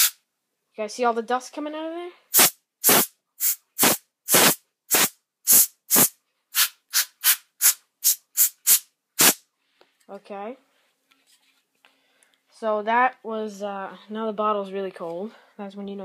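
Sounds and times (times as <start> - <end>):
compressed air hissing blasts: 0.0 - 0.2, 2.3 - 9.4.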